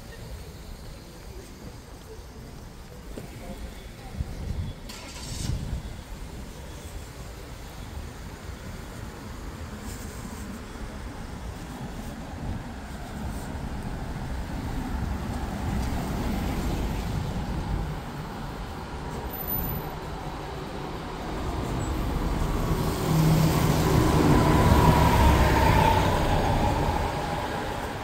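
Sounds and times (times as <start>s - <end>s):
bus engine and tyres passing: 0.1s - 28.0s
cars passing: 7.9s - 28.0s.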